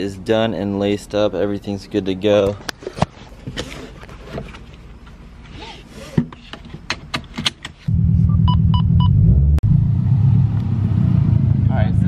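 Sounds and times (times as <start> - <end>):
car engine starting and running: 7.9 - 12.0.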